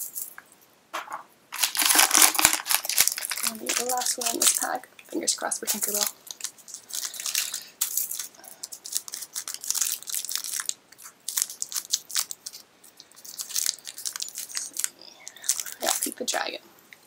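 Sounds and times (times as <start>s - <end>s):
packaging crinkling: 1.5s - 4.8s, 5.6s - 16.2s.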